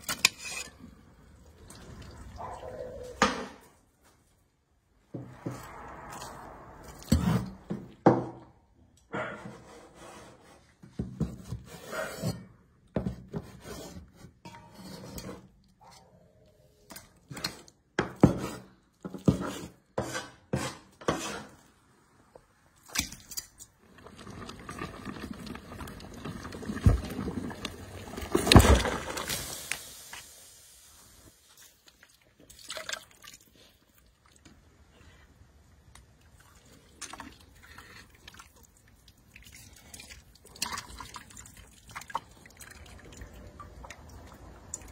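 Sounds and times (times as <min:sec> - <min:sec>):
water splashing: 0:31.5 - 0:33.7.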